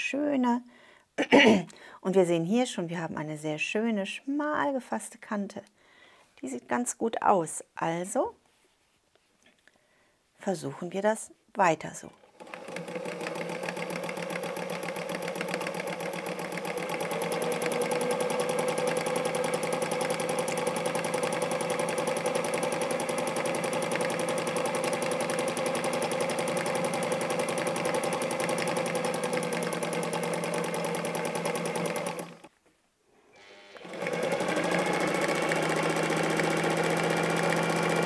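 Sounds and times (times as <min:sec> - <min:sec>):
sewing machine stitching: 0:12.2 - 0:32.5, 0:33.8 - 0:38.0.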